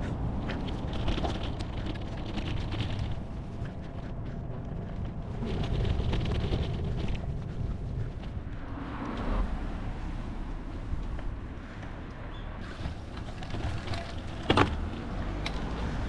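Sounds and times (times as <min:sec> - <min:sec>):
bike road noise: 0:00.0 - 0:16.0
wind rumbling on microphone: 0:00.0 - 0:16.0
fast rattling clicks: 0:00.5 - 0:03.7.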